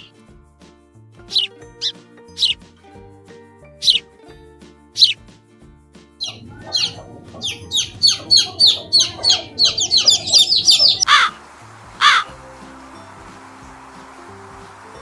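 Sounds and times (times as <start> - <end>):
background music: 0.0 - 15.0
chicks peeping: 6.2 - 11.3
crow cawing: 6.2 - 11.4, 12.0 - 12.3.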